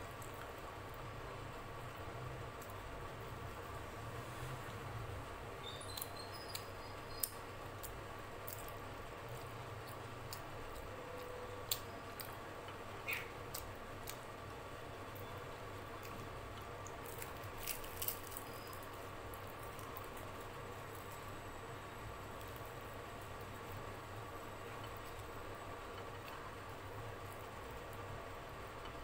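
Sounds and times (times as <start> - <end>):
steady low hum: 0.0 - 29.0
bread tearing by hand: 17.0 - 18.8.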